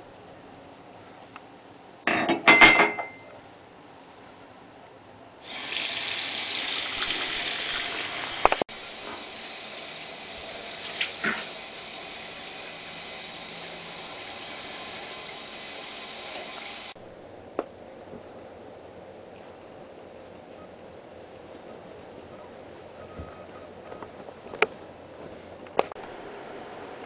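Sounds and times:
water gushing from faucet into sink: 0:05.4 - 0:17.0.

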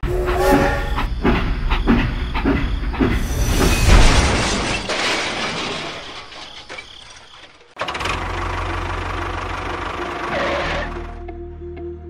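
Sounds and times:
toy train chugging: 0:08.2 - 0:11.1.

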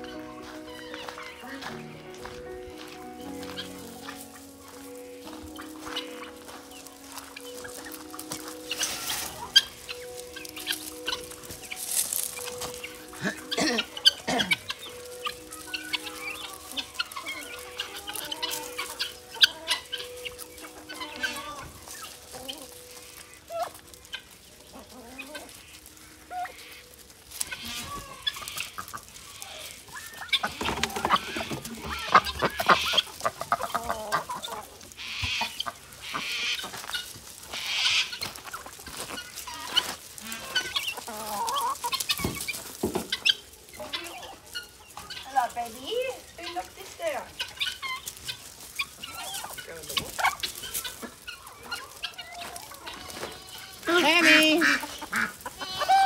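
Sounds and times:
poultry clucking and calling: 0:00.0 - 0:56.0.

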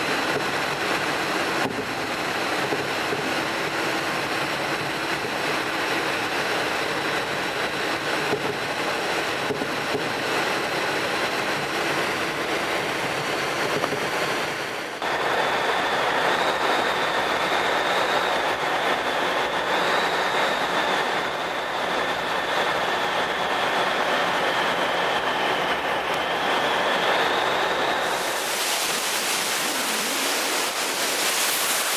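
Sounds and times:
rushing airflow noise: 0:00.0 - 0:31.9
bright hiss: 0:28.0 - 0:31.9.

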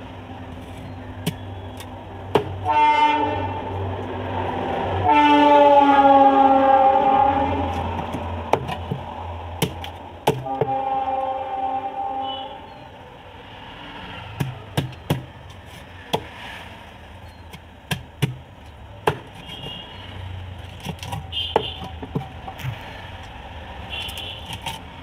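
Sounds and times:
cleaver chopping fish on wood: 0:02.3 - 0:02.6, 0:08.0 - 0:10.7, 0:14.4 - 0:15.3, 0:17.9 - 0:19.6.

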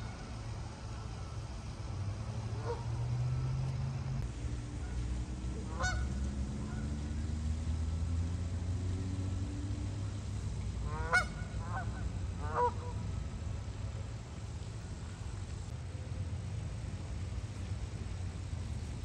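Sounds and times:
geese honking: 0:02.6 - 0:03.6, 0:05.6 - 0:06.9, 0:10.9 - 0:13.0.

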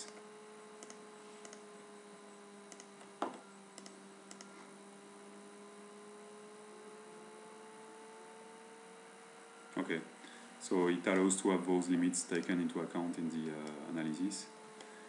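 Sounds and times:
low electrical hum: 0:00.0 - 0:15.0
computer mouse clicks: 0:00.8 - 0:01.6, 0:02.7 - 0:04.5.

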